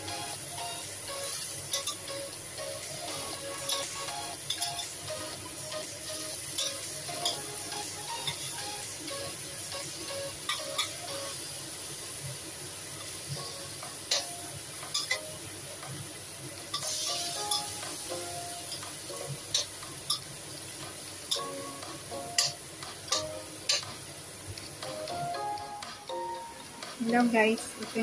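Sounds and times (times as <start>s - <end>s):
food sizzling in a wok: 0.0s - 26.4s.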